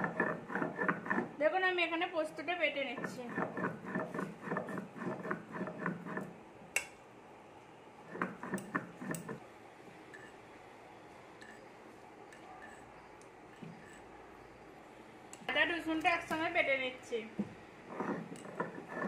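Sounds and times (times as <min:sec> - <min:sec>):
stone roller scraping on grinding stone: 0:00.0 - 0:01.4, 0:02.7 - 0:06.3, 0:08.0 - 0:09.4, 0:12.4 - 0:13.0, 0:13.6 - 0:14.1, 0:17.8 - 0:19.0.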